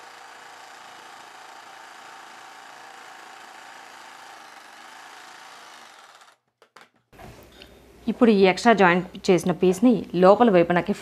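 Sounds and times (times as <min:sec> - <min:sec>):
electric sewing machine running: 0:00.0 - 0:06.5.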